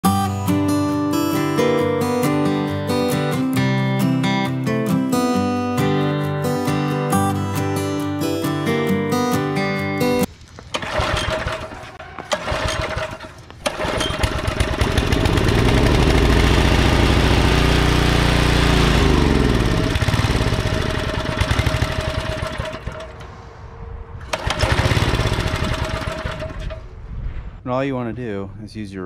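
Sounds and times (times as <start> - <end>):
small engine running unevenly: 10.7 - 23.2, 24.2 - 26.8.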